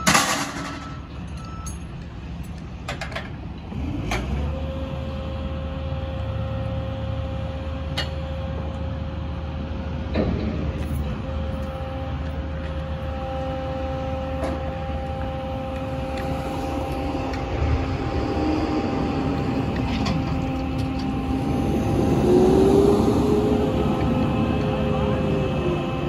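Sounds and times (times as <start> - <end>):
hydraulic crane humming and whining: 0.0 - 26.0.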